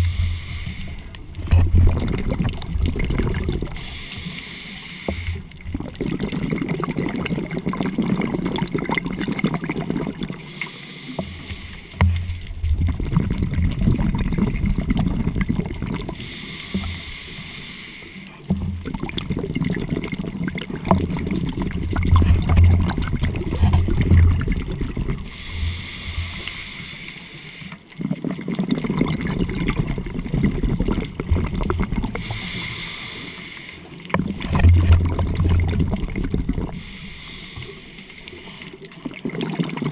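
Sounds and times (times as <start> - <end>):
hissing regulator inhalations: 0.0 - 1.2, 3.7 - 5.4, 10.4 - 12.2, 16.2 - 18.4, 25.3 - 27.9, 32.1 - 34.0, 36.7 - 38.9
crackling exhaust bubbles: 0.0 - 39.9.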